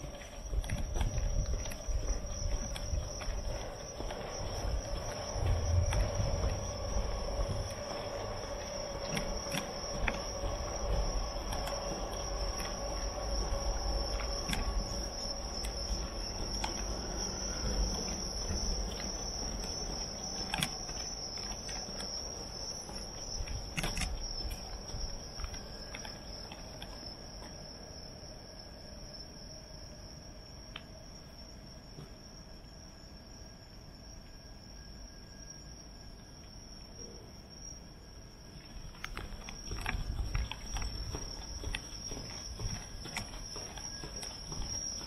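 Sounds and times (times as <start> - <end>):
insects trilling: 0.0 - 45.0
scattered clicks: 0.1 - 27.6, 38.6 - 45.0
low rumble: 0.4 - 21.6.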